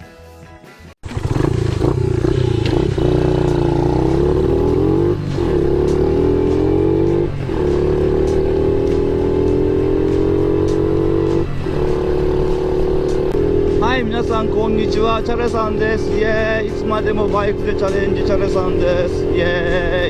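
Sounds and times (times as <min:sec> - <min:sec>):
small motorcycle engine accelerating: 0:01.0 - 0:15.2.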